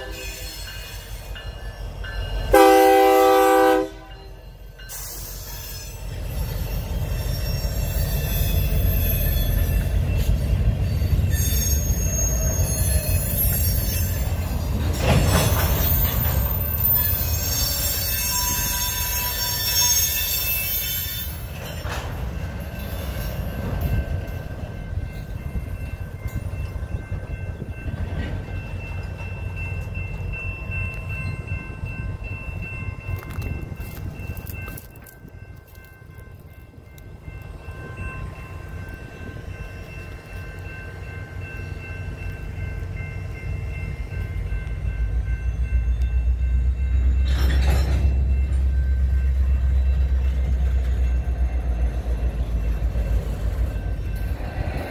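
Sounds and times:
locomotive horn: 0.0 - 0.6, 2.5 - 4.2
train cars rumbling: 0.0 - 54.9
wheel squeal: 4.9 - 9.9, 10.9 - 21.9.

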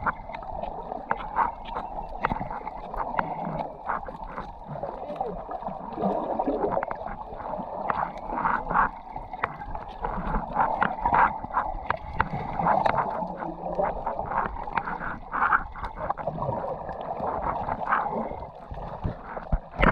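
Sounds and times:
water sloshing and gurgling: 0.0 - 19.9.

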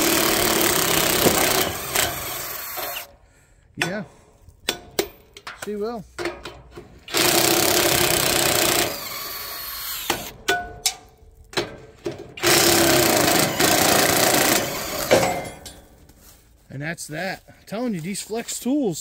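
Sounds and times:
impact wrench hammering nuts: 0.0 - 3.1, 3.8 - 15.8.

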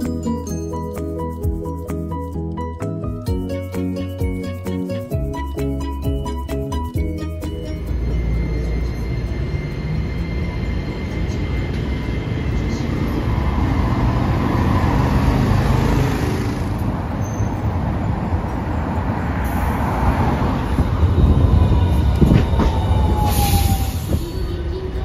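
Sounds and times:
city street traffic: 0.0 - 25.0
tram pulling away: 0.0 - 25.0
tram rumble and whine: 0.0 - 25.0
motorcycle passing: 13.4 - 17.1.

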